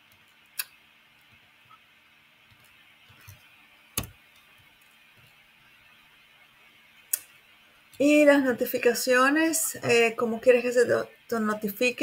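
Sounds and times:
low room hiss: 0:00.0 - 0:12.0.

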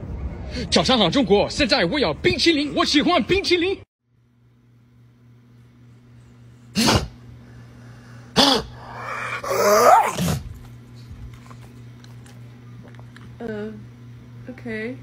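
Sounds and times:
dog drawn-out rising call: 0:08.4 - 0:10.4
large dog woofing: 0:08.4 - 0:10.6.

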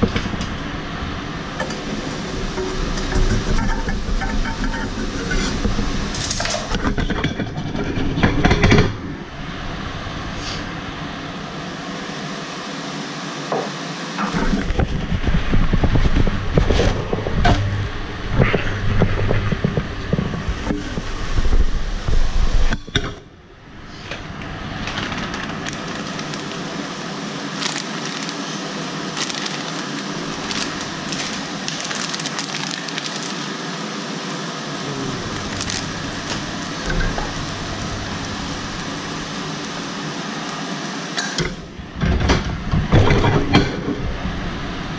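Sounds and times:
pan rumbling and knocking: 0:00.0 - 0:09.1, 0:14.2 - 0:23.0, 0:35.3 - 0:39.7.

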